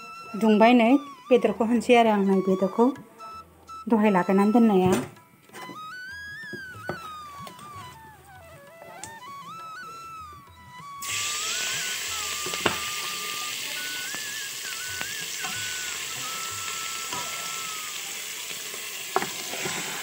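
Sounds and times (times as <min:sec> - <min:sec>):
flute-like melody: 0:00.0 - 0:20.0
hot oil sizzling: 0:11.0 - 0:20.0.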